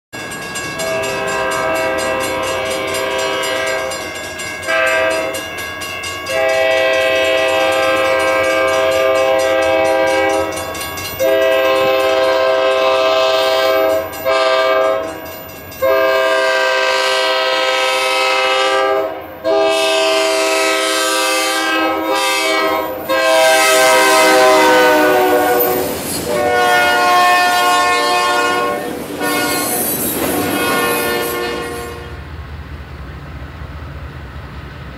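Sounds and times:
locomotive air horn blasts: 0.8 - 5.5, 6.3 - 15.2, 15.8 - 32.3
freight cars rolling: 22.9 - 34.9.

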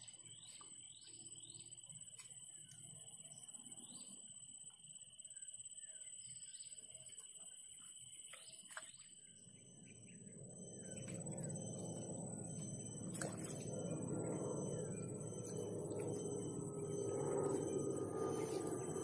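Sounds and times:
steady high-pitched hum: 0.0 - 19.0
birds chirping: 5.6 - 19.0.

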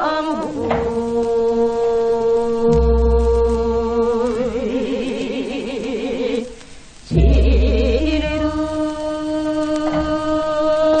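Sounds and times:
woman singing with vibrato: 0.0 - 11.0.

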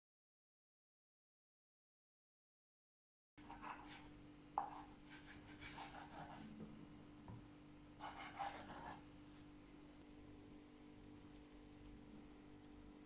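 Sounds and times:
knife slicing through dough: 3.4 - 6.4
dough rubbing and scraping: 3.4 - 6.5, 8.0 - 9.5
faint steady hum: 3.4 - 13.0.

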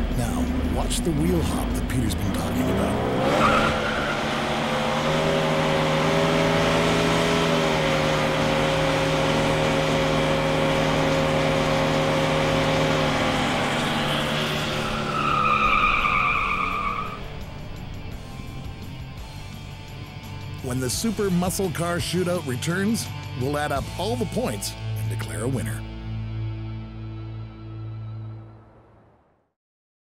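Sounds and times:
car engine revving high: 0.0 - 20.6
tyre squeal: 13.4 - 17.4.

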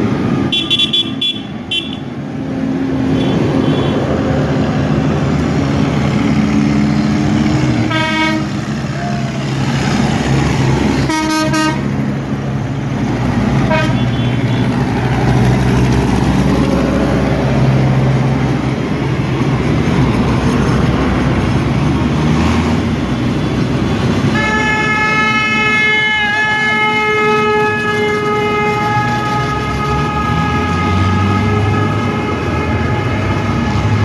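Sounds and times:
tractor engines running: 0.0 - 34.0
horn toots: 0.5 - 2.1, 7.9 - 9.4, 11.0 - 11.9, 13.6 - 14.7, 24.3 - 33.9.

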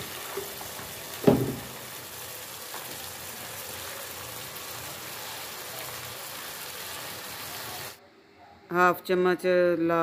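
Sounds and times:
sauce sizzling in oil: 0.0 - 8.0.

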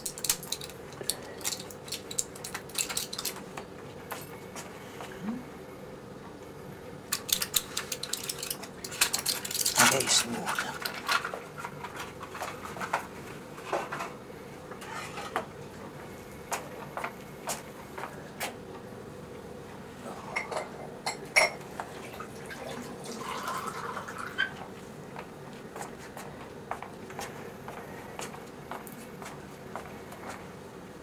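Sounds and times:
small hard objects clinking: 0.0 - 3.4, 7.1 - 11.3.

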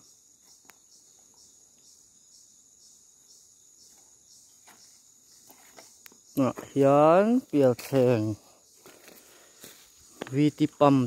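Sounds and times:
crickets chirping: 0.0 - 11.0
faint ticks: 0.5 - 0.8.

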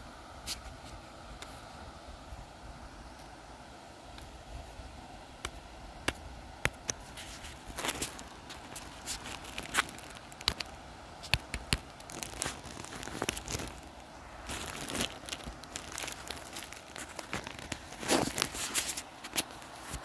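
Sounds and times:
footsteps on grass: 7.0 - 20.0
swishing rustle: 12.1 - 20.0.

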